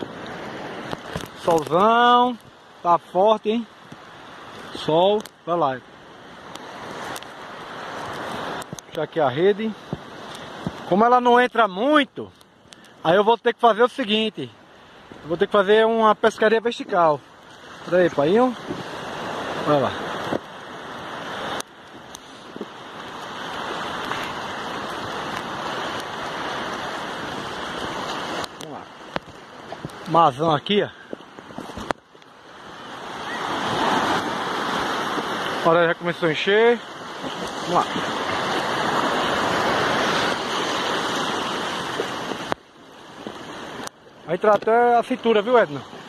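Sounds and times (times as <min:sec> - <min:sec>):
surf washing over sand: 0:00.0 - 0:46.0
faint clicks: 0:12.3 - 0:13.0.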